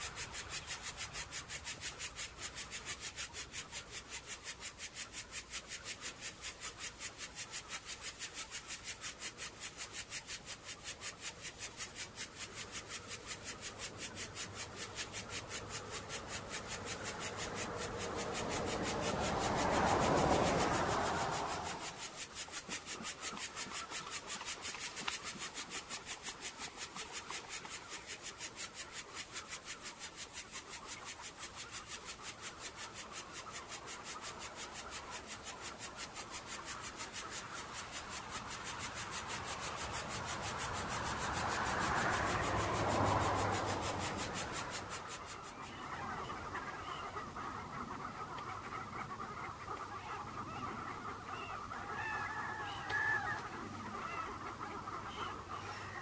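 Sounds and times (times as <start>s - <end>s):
rhythmic rasping insect pulse: 0.0s - 46.5s
faint honking bird calls: 45.4s - 56.0s.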